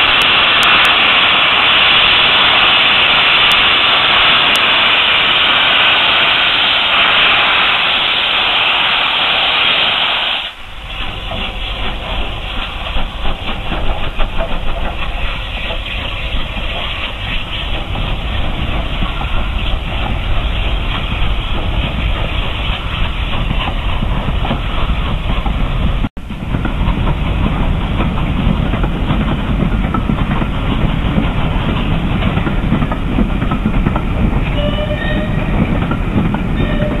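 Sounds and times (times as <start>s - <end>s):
steam locomotive exhaust rushing: 0.0s - 37.0s.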